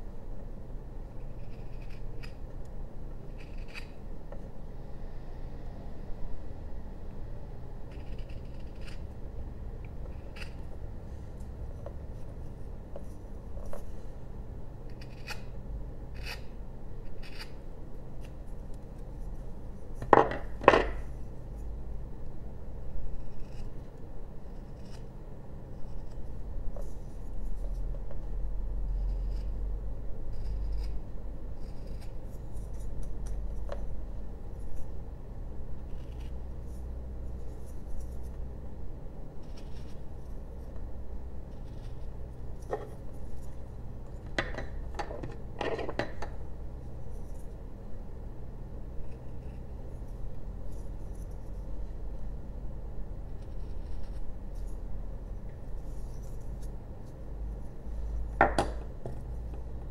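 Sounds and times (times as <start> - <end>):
steady low hum: 0.0 - 59.9
knife carving wood: 1.1 - 4.2, 7.8 - 9.2, 9.9 - 10.8, 14.9 - 21.7, 23.0 - 34.0, 35.7 - 38.4, 39.3 - 45.0, 49.0 - 52.0, 53.2 - 59.8
sharp clicks and knocks: 58.4 - 59.7.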